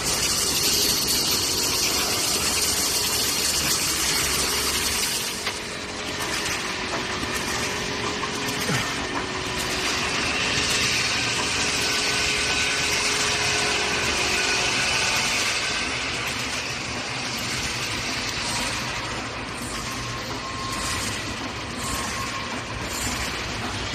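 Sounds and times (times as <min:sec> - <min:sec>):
welding machine running: 0:00.0 - 0:23.9.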